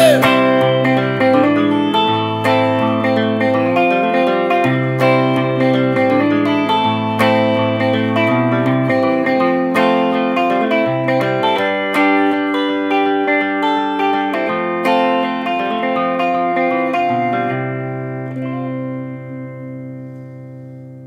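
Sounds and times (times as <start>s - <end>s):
electric guitar playing notes: 0.0s - 21.0s.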